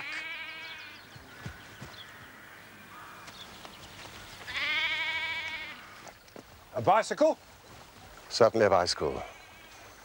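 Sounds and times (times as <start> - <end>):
sheep bleating: 0.0 - 1.0, 4.5 - 6.0.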